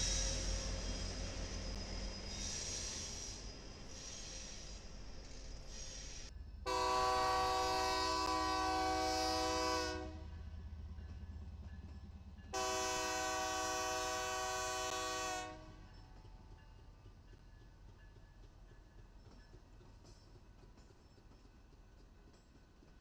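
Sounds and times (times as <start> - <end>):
locomotive air horn blasts: 6.7 - 10.3, 12.6 - 15.8.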